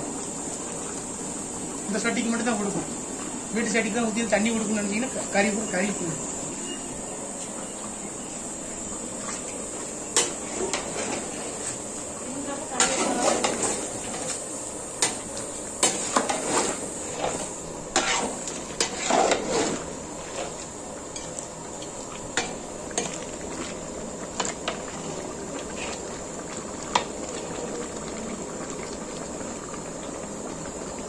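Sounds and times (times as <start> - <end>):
steady hiss: 0.0 - 31.0
metal spatula scraping a pot: 12.8 - 13.8, 15.8 - 20.6.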